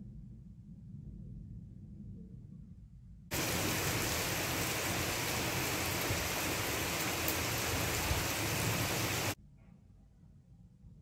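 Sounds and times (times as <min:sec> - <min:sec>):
rain on a wet street: 0:03.3 - 0:09.4.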